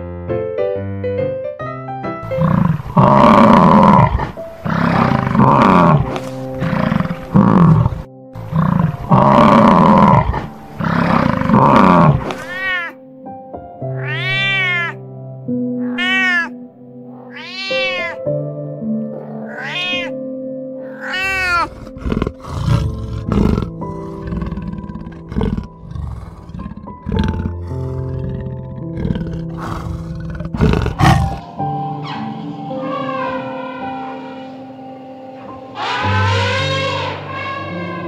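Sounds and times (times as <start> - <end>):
background music: 0.0 - 38.0
large animal roaring: 2.2 - 12.8, 20.8 - 34.7
cat meowing: 11.6 - 13.0, 13.9 - 15.0, 15.8 - 16.6, 17.2 - 18.3, 19.2 - 20.2, 20.8 - 22.3.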